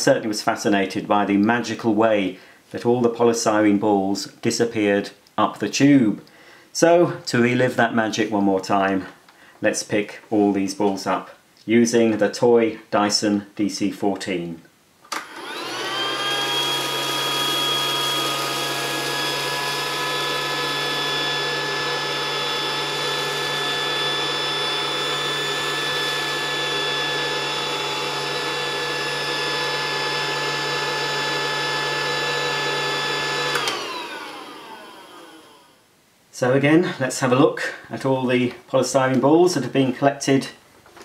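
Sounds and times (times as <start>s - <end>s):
toy vacuum cleaner motor whining: 15.2s - 35.8s.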